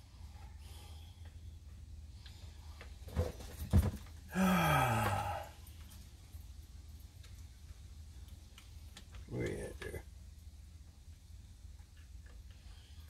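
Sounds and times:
low groaning voice: 4.3s - 5.6s.

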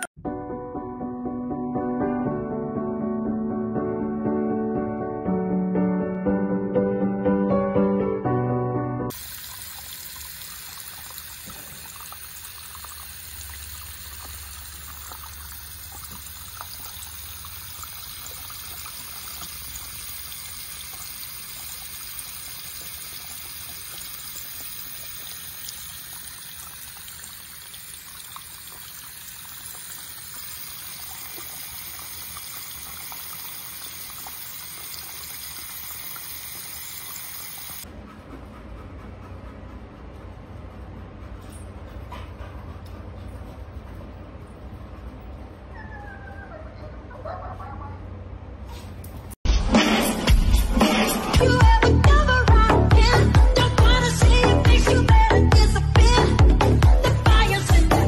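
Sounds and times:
tap water splashing into basin: 9.1s - 37.8s.

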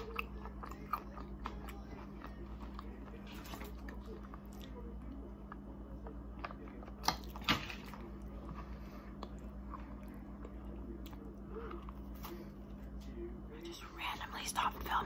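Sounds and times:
chewing sweets: 0.0s - 15.0s.

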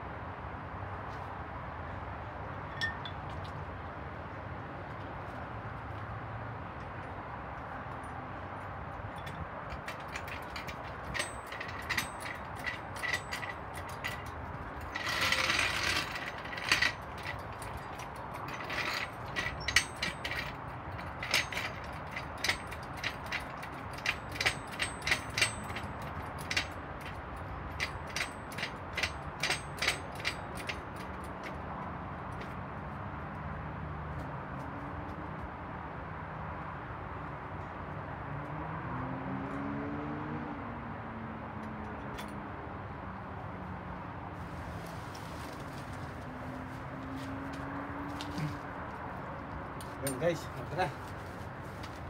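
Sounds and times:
rustling scrape: 9.8s - 21.8s, 44.4s - 48.7s, 50.9s - 52.0s.

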